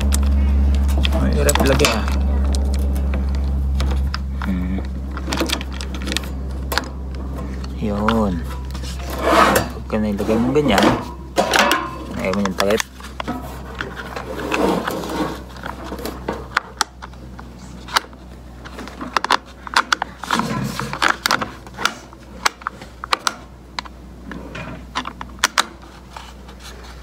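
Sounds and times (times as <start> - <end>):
plastic rubbing: 0.0 - 27.0
plastic clicks and clatter: 15.5 - 24.0.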